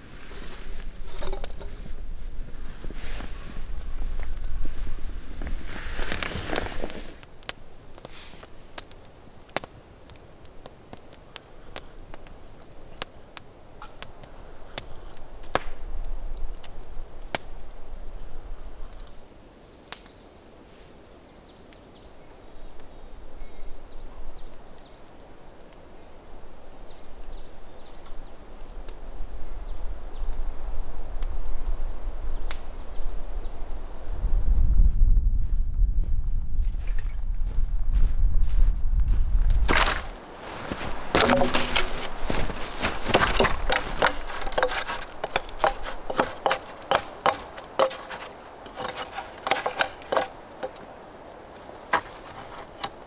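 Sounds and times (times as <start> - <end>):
wind rumble on microphone: 0.0 - 7.3, 26.7 - 40.1
campfire crackling: 0.0 - 34.2, 39.6 - 53.0
small birds chirping: 18.6 - 28.5, 41.3 - 52.8.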